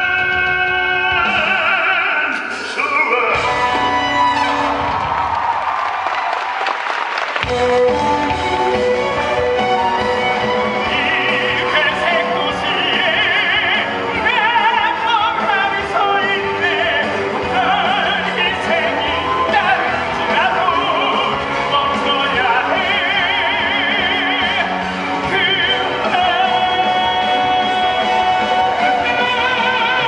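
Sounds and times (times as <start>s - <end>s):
orchestral accompaniment: 2.8s - 5.6s, 7.4s - 30.0s
solo singer with vibrato: 10.7s - 30.0s.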